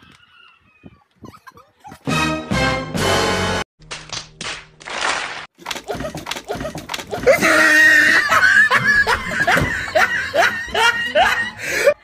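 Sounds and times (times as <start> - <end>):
women laughing loudly: 5.8 - 12.0.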